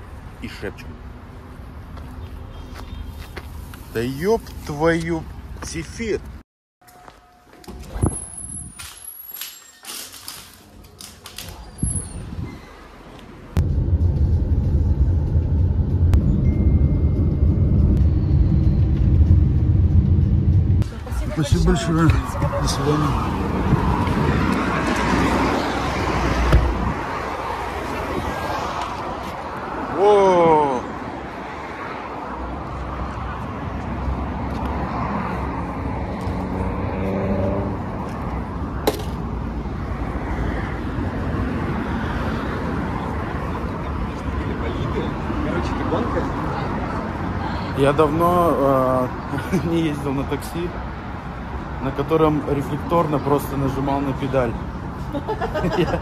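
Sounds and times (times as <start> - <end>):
car engine and road noise: 0.0 - 56.0
vehicle passing: 13.4 - 56.0.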